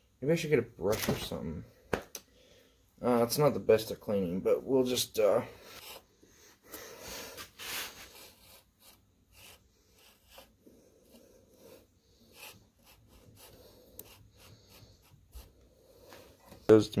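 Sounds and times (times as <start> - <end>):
faint rubbing and scuffing: 5.5 - 16.8.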